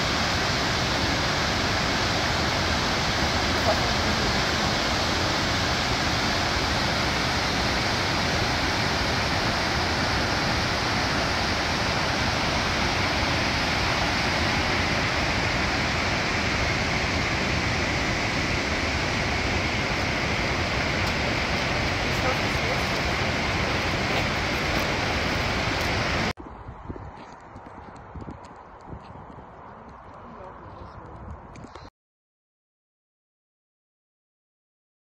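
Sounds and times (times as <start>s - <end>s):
river rapids roaring: 0.0s - 26.3s.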